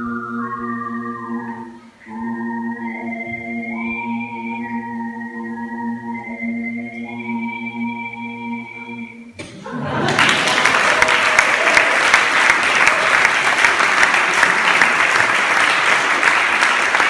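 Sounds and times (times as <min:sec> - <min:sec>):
large audience clapping: 0:09.7 - 0:17.0.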